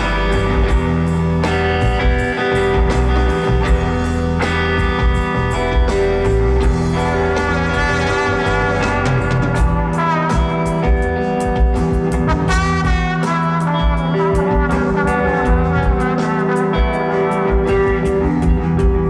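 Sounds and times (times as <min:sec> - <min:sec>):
drum kit: 0:00.0 - 0:19.0
electric bass: 0:00.0 - 0:19.0
trombone melody: 0:06.6 - 0:19.0.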